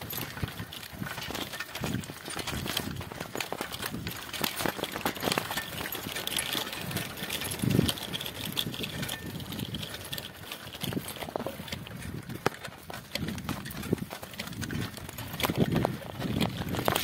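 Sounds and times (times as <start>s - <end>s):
bicycle parts rattling: 0.0s - 17.0s
bicycle tyres crunching on grit: 0.0s - 17.0s.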